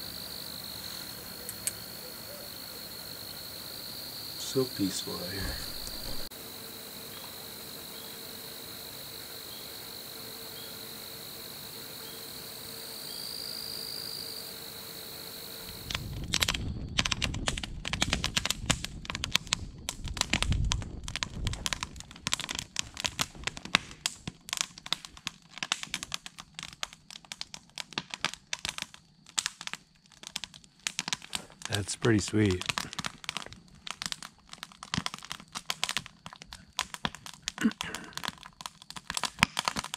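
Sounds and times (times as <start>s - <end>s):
crickets chirring: 0.0s - 17.4s, 28.5s - 39.9s
fire crackling and popping: 0.0s - 39.9s
low rushing of fire: 2.7s - 23.4s.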